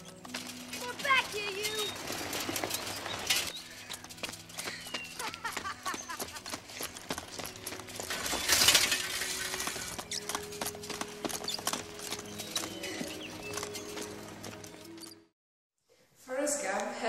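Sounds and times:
metal leg braces clattering: 0:00.0 - 0:15.1
running footsteps on dirt path: 0:00.0 - 0:15.2.

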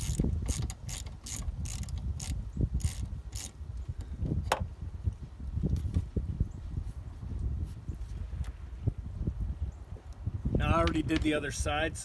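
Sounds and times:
hand ratchet clicking: 0:00.0 - 0:03.6.

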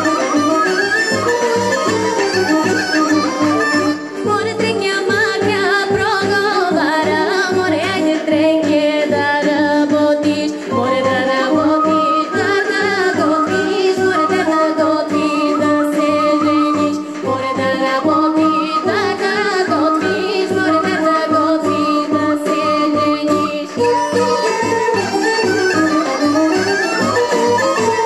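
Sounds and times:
folk backing track with beat: 0:00.0 - 0:28.0
woman singing into a microphone: 0:02.6 - 0:24.9.

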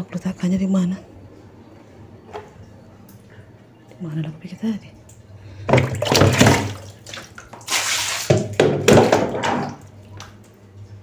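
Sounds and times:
steady low hum: 0:00.0 - 0:07.6
water splashing and pouring: 0:05.7 - 0:10.0.

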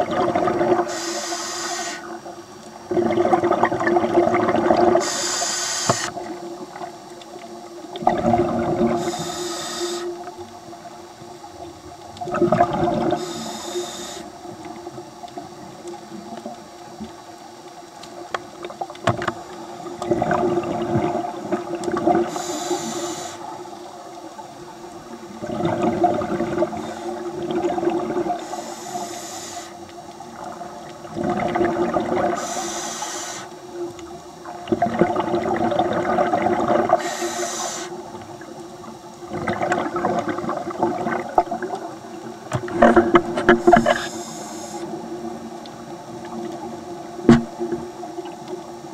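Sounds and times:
diver breathing through regulator: 0:00.8 - 0:02.1, 0:05.0 - 0:06.2, 0:08.9 - 0:10.2, 0:13.1 - 0:14.3, 0:22.2 - 0:23.6, 0:28.4 - 0:29.8, 0:32.3 - 0:33.6, 0:36.9 - 0:38.0, 0:43.6 - 0:44.9.

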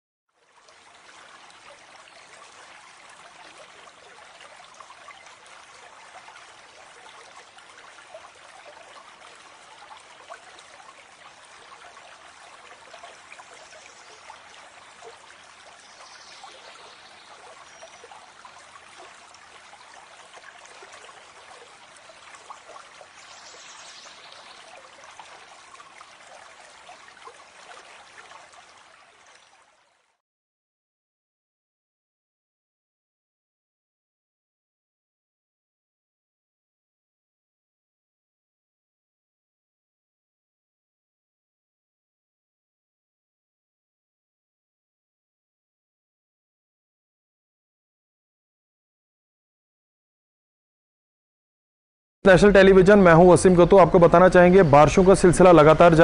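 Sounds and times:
floodwater rushing: 0:00.6 - 0:29.9, 0:52.3 - 0:56.0.

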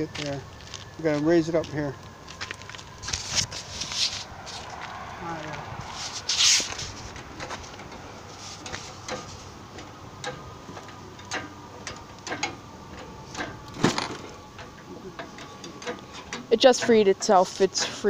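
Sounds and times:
metal clunk: 0:08.6 - 0:18.0.

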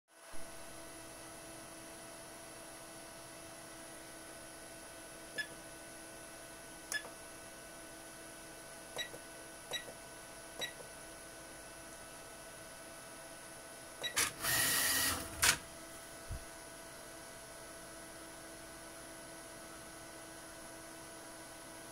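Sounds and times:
machine electronics humming: 0:14.0 - 0:15.8.

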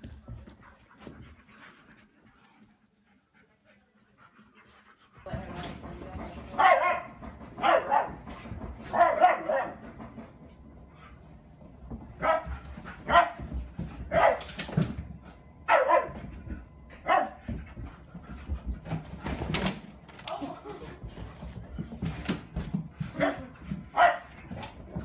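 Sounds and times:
dog barking: 0:06.6 - 0:08.2, 0:08.9 - 0:09.8, 0:14.1 - 0:14.4, 0:15.7 - 0:16.2, 0:17.0 - 0:17.4, 0:23.2 - 0:24.3.

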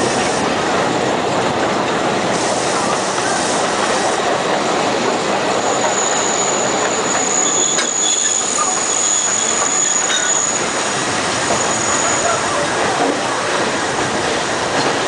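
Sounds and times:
train wheels rumbling on rails: 0:00.0 - 0:15.0
high wheel squeal: 0:05.5 - 0:12.5.

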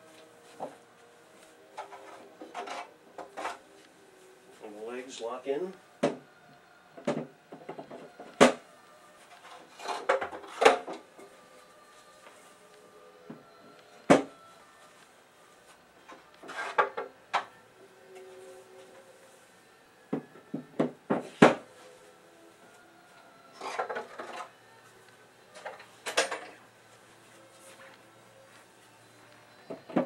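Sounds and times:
wood-on-wood knocks and clunks: 0:06.0 - 0:06.2, 0:20.1 - 0:21.6.

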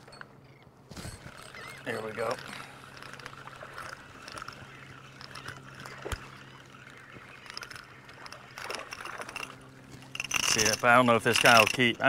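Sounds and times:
boat low steady hum: 0:00.0 - 0:12.0
faint water sounds: 0:00.0 - 0:12.0.

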